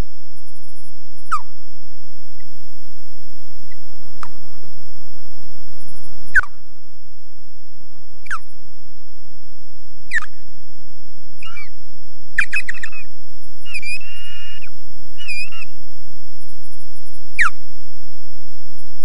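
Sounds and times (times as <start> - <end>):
osprey alarm calls: 1.3 - 1.5, 10.1 - 10.4, 11.4 - 11.8, 12.4 - 15.7, 17.4 - 17.6.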